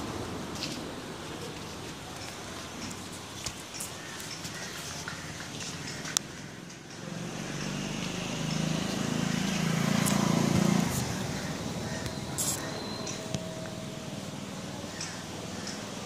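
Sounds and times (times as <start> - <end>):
motor vehicle passing by: 5.7 - 16.0.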